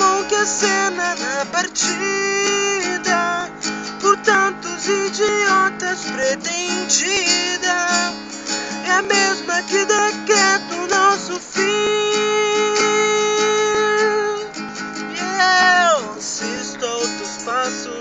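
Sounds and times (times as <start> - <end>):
man singing: 0.0 - 18.0
strummed acoustic guitar: 0.0 - 18.0.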